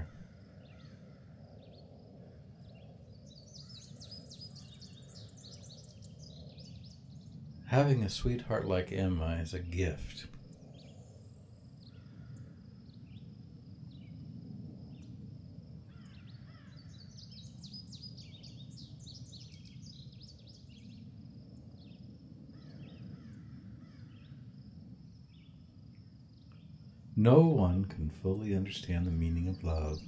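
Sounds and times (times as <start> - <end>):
low rumble: 0.0 - 0.4
small birds chirping: 0.0 - 14.2, 15.9 - 24.4, 25.1 - 30.0
faint high-pitched buzz: 27.0 - 30.0.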